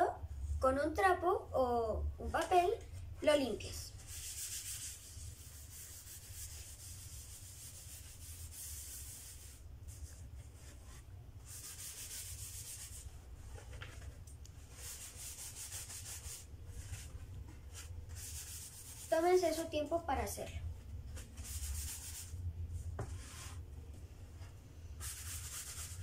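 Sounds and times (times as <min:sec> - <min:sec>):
low steady hum: 0:00.0 - 0:26.0
cloth rubbing on wood: 0:03.9 - 0:14.0, 0:14.6 - 0:19.7, 0:20.8 - 0:22.4, 0:23.0 - 0:23.7.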